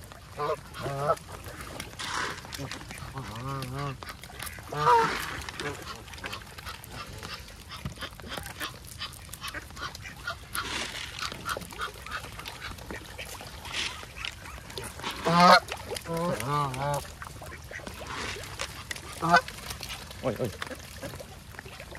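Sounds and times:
ducks quacking: 0.3s - 19.6s
geese honking: 2.0s - 7.4s, 13.7s - 18.4s, 19.1s - 19.6s.

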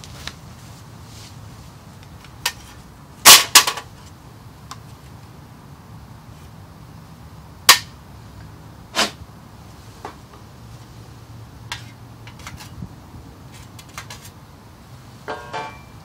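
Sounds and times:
ringing metallic clatter: 15.3s - 16.0s.

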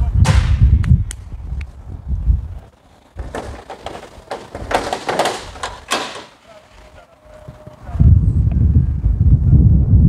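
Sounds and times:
wind buffeting microphone: 0.0s - 10.0s
metal door latch clicking and rattling: 3.2s - 6.8s.

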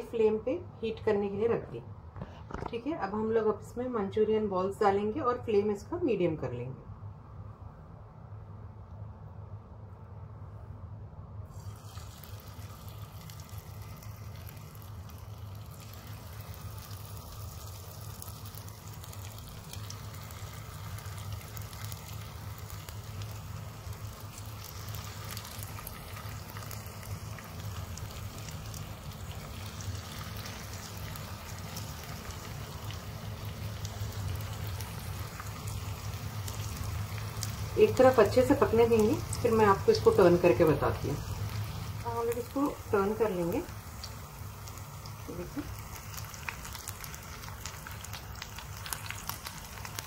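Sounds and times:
low steady hum: 0.0s - 50.0s
food sizzling in hot oil: 11.5s - 50.0s.

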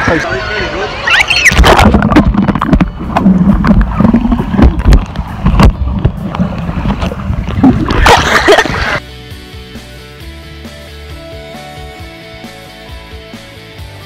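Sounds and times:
bubbling water: 1.5s - 9.0s
underwater knocks: 1.6s - 8.0s
underwater rumble of moving water: 1.6s - 9.0s.

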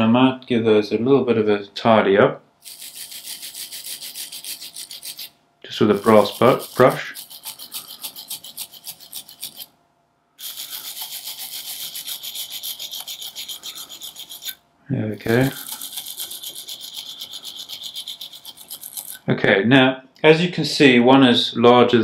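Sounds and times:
wire brush scrubbing metal: 2.6s - 9.7s, 10.4s - 14.6s, 15.2s - 19.2s.

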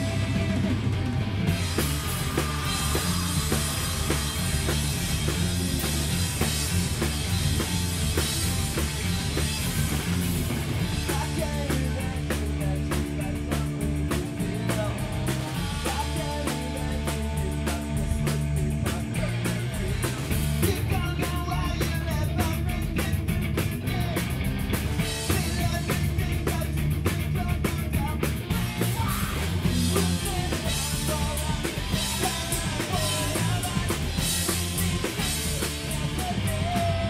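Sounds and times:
drum kit beat: 0.0s - 37.0s
electric bass: 0.0s - 37.0s
electric guitars: 0.0s - 37.0s
person singing: 1.6s - 4.5s, 11.0s - 24.3s, 25.3s - 37.0s.

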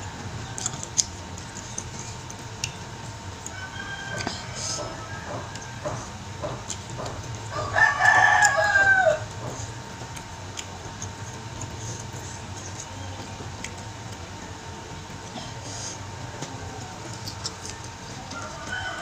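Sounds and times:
fingers picking through food: 0.4s - 14.3s, 16.4s - 19.0s
rooster crowing: 3.4s - 6.6s, 7.5s - 9.6s, 18.2s - 19.0s.

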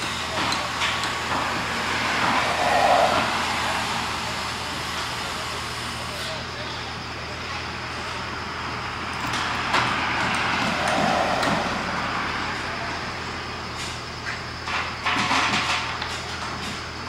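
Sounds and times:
steady low hum: 0.0s - 6.1s
car passing: 0.8s - 5.7s, 9.0s - 13.6s.

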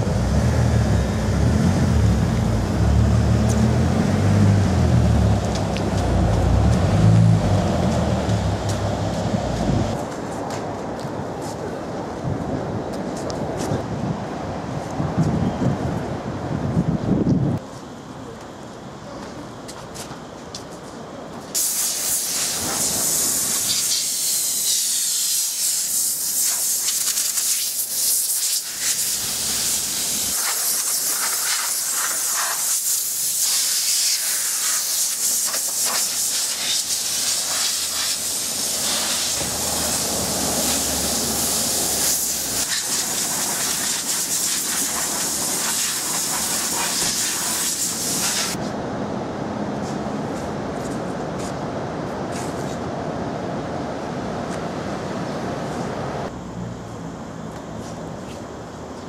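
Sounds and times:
air blow gun hissing: 21.6s - 48.6s.

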